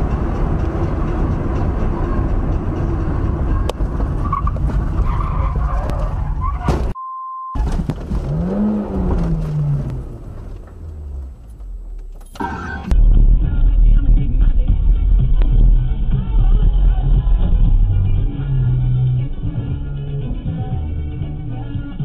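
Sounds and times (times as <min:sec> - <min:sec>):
music: 0:00.0 - 0:04.2, 0:13.0 - 0:22.0
car and road noise: 0:00.0 - 0:07.0, 0:07.6 - 0:22.0
short steady beep: 0:07.0 - 0:07.6.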